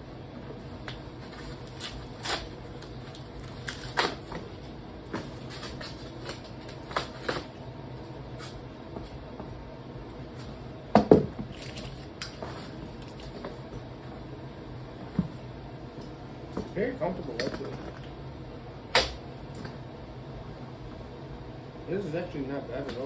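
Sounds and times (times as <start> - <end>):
packaging clicking and crinkling: 0.9 - 4.3.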